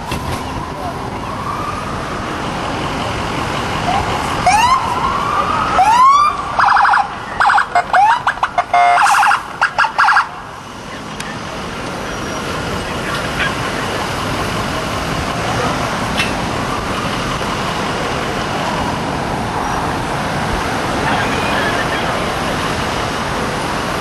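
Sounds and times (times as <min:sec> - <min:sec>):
city street traffic: 0:00.0 - 0:24.0
police siren whoops and chirps: 0:03.9 - 0:10.3.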